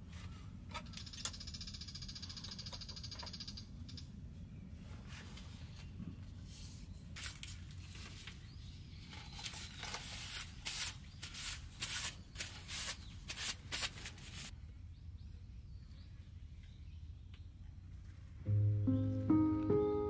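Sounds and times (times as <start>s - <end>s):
paper filters crinkling: 7.2s - 14.5s.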